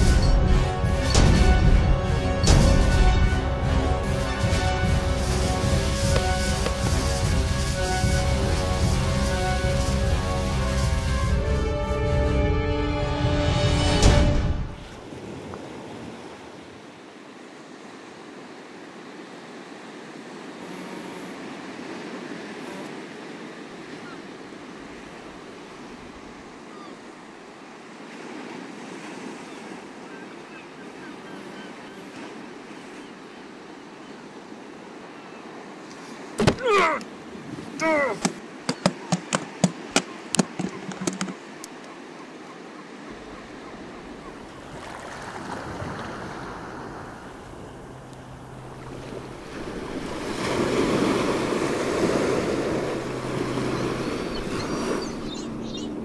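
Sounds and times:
ocean surf on rocky shore: 0.0s - 11.6s, 13.6s - 56.0s
sharp knocks: 38.2s - 41.4s.

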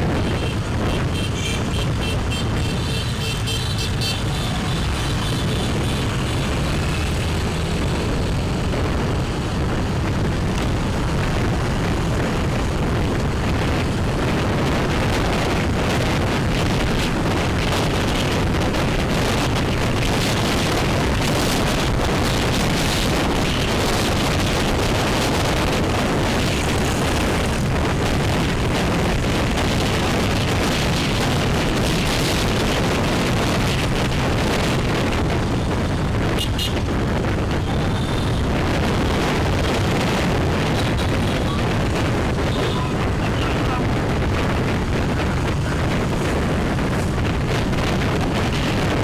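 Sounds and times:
road and traffic noise: 0.0s - 49.0s
wind buffeting microphone: 0.0s - 49.0s.

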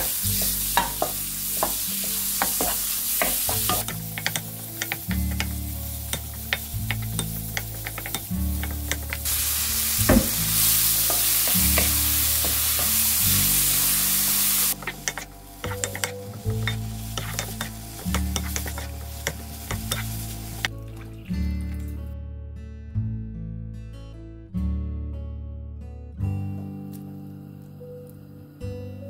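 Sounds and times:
food sizzling in pan: 0.0s - 21.1s
soft background music: 0.0s - 29.0s
wooden spatula scraping pan: 14.8s - 20.2s.

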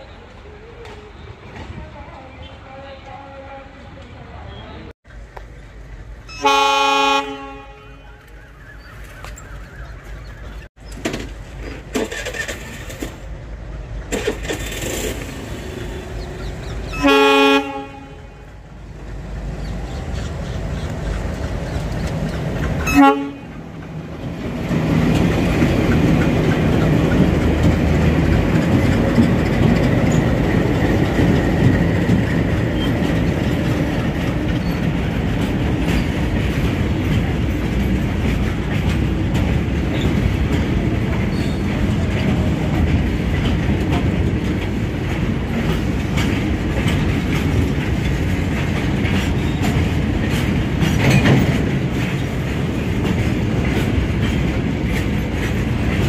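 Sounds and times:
train rumbling past: 0.0s - 56.0s
train horn blast: 6.3s - 8.3s, 16.9s - 18.6s, 22.8s - 23.6s.

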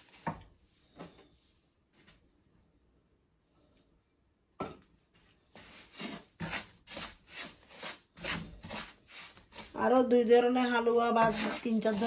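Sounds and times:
wooden spoon scraping frying pan: 5.4s - 12.0s.

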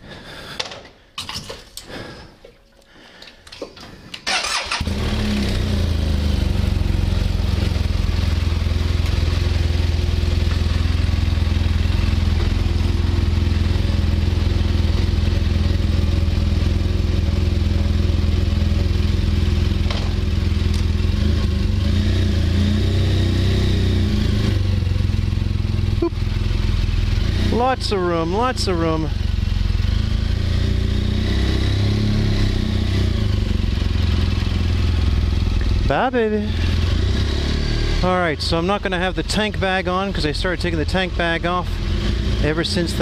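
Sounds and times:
electric starter whirring: 4.1s - 5.8s
motorcycle engine idling: 4.4s - 21.8s, 24.1s - 30.3s, 33.3s - 37.0s, 38.0s - 43.0s.

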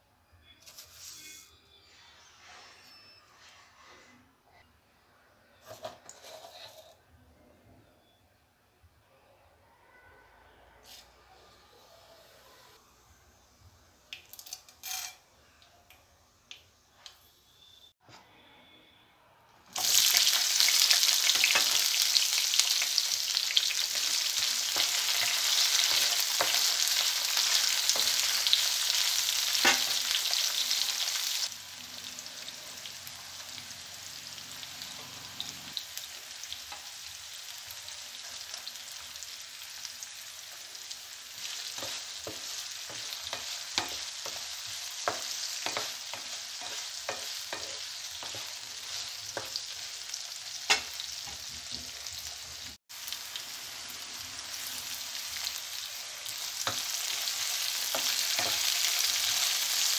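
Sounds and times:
wooden spatula scraping pan: 0.6s - 4.3s, 5.6s - 7.0s
onions sizzling in hot oil: 19.7s - 59.9s.

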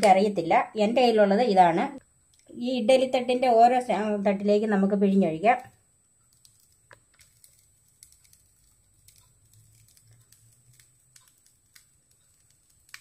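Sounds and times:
small metal clicks: 5.6s - 13.0s.

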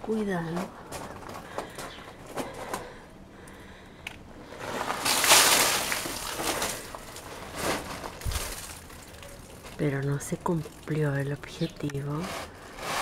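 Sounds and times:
water pouring and splashing: 4.7s - 11.6s.

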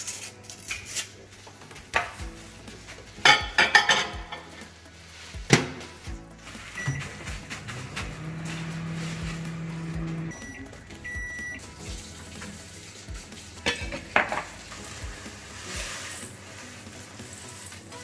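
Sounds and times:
microwave oven humming: 6.6s - 12.0s
microwave beeps: 6.7s - 7.5s, 9.6s - 11.7s.

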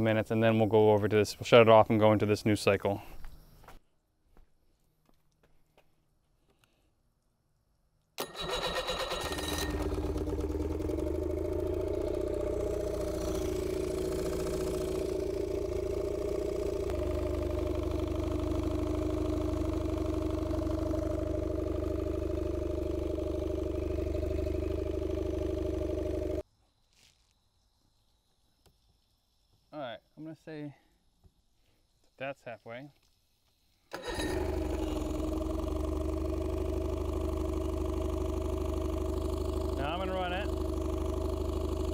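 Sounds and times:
outboard engine running: 8.2s - 26.4s, 33.9s - 41.9s.

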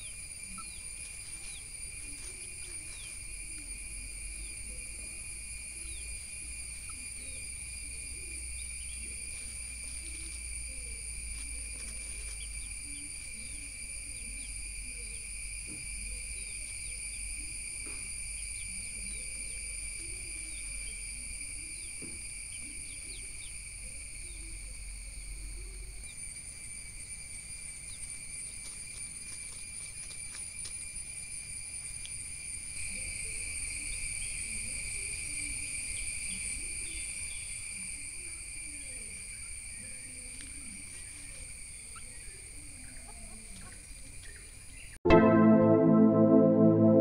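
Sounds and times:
hens scratching in dry leaves: 0.6s - 3.4s, 9.0s - 13.7s, 27.9s - 31.0s.

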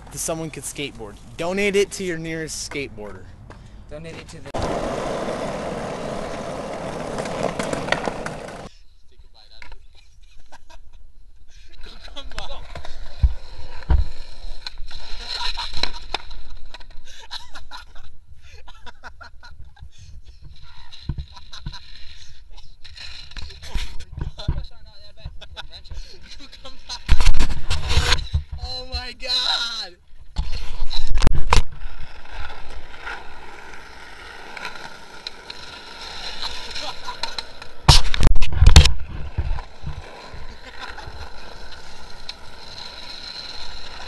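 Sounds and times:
skateboard scuffing: 3.5s - 8.7s, 27.0s - 28.6s, 30.3s - 44.0s
skateboard clacking on ground: 4.1s - 8.7s, 31.4s - 44.0s.

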